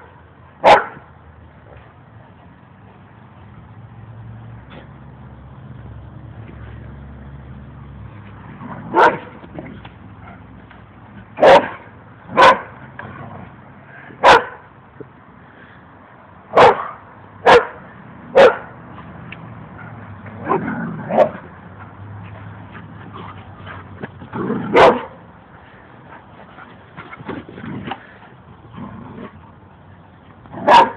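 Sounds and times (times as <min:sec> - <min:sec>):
dog barking: 0:00.6 - 0:01.0, 0:08.9 - 0:09.3, 0:11.4 - 0:11.8, 0:12.4 - 0:12.8, 0:14.2 - 0:14.6, 0:16.5 - 0:17.8, 0:18.4 - 0:18.7, 0:24.7 - 0:25.2, 0:30.6 - 0:30.9.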